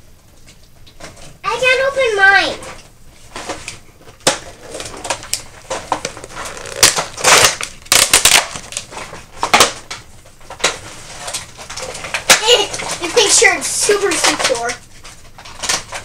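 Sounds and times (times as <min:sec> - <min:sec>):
plastic packaging crackling: 0:03.3 - 0:16.0.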